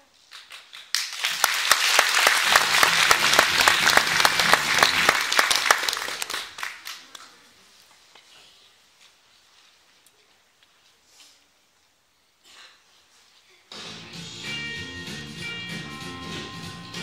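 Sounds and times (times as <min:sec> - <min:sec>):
audience applauding: 0:00.3 - 0:07.4.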